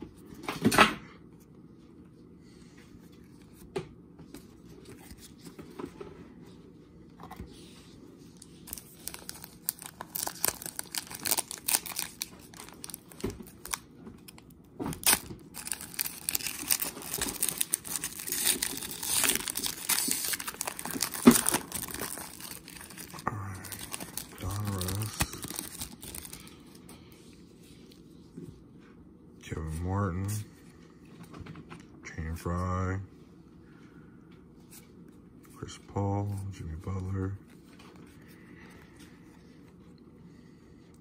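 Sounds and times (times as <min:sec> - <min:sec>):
foil wrapper crinkling and tearing: 0:08.6 - 0:26.7.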